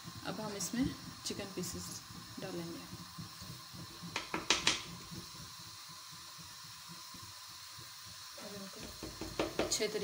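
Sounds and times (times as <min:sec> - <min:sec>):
chicken sizzling in hot oil: 0:00.0 - 0:10.0.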